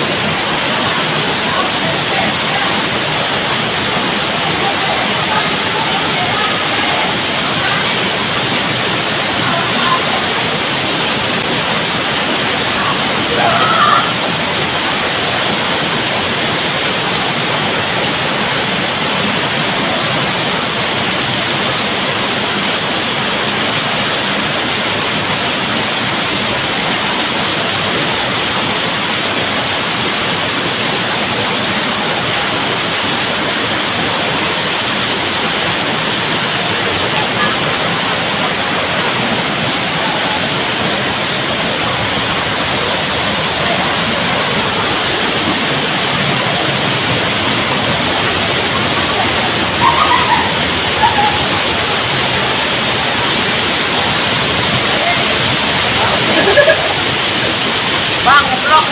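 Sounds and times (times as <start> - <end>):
waterfall rushing over rocks: 0.0 - 58.9.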